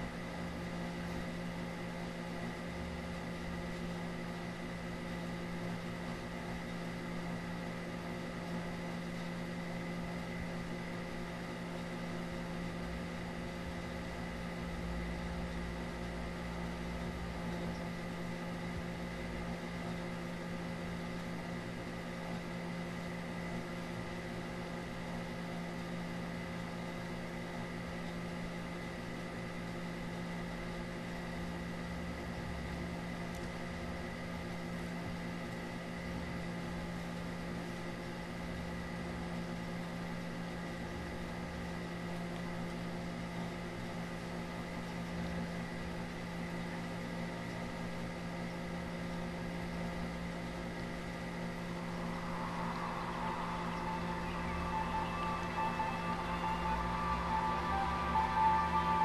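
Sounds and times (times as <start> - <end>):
low hum: 49.4 - 59.0.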